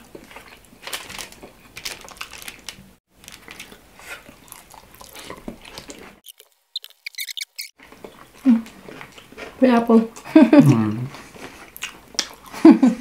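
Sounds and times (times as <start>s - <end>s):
person chewing wetly: 3.3s - 12.6s
sticky clicks: 6.8s - 7.7s.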